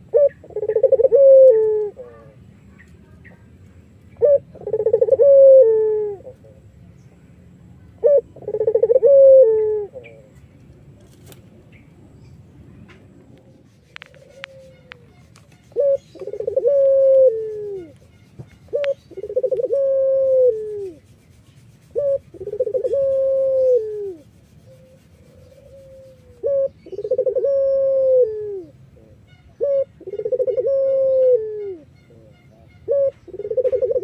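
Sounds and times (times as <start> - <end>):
dove cooing: 0.0 - 2.4, 4.2 - 6.7, 8.0 - 10.4, 13.4 - 21.0, 21.9 - 34.0.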